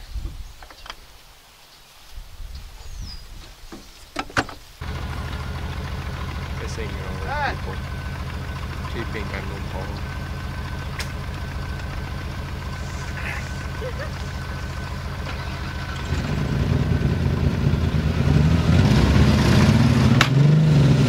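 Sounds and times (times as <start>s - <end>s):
car engine idling and revving: 4.8s - 21.0s.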